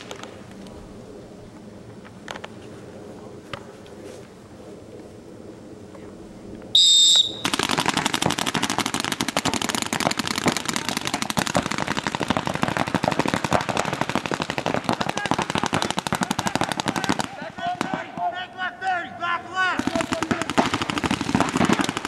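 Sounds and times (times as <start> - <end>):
high-pitched start signal: 6.8 - 7.4
paintball markers firing: 7.0 - 18.3, 19.8 - 22.0.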